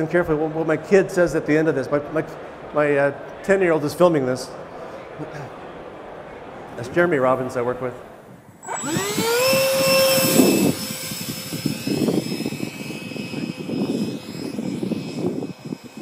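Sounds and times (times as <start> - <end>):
wind buffeting microphone: 8.3 - 16.0
model plane motor whining: 8.6 - 16.0.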